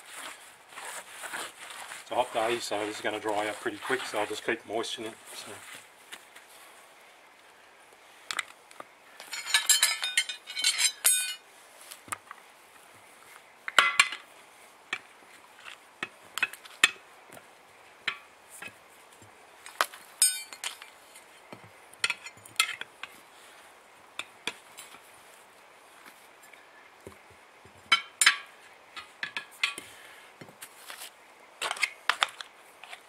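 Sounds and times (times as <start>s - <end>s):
tyre levers clinking on rim: 9.2s - 11.4s, 20.2s - 20.8s.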